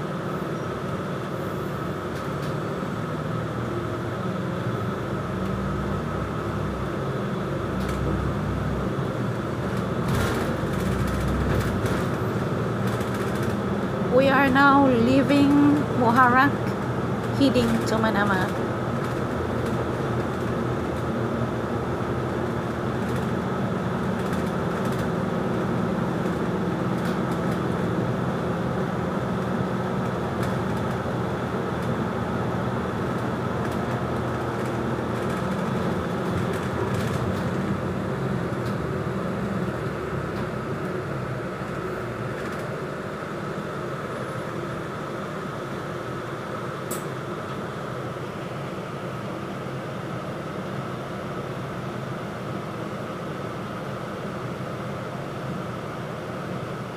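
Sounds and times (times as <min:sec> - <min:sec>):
bus engine and road noise: 0:00.0 - 0:56.9
faint rattles and clicks: 0:09.7 - 0:12.2, 0:12.8 - 0:13.6, 0:24.0 - 0:25.1, 0:33.1 - 0:37.7, 0:41.6 - 0:42.8.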